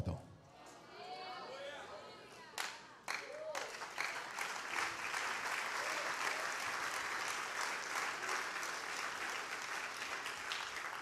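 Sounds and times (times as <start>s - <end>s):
crowd clapping: 2.6s - 11.0s.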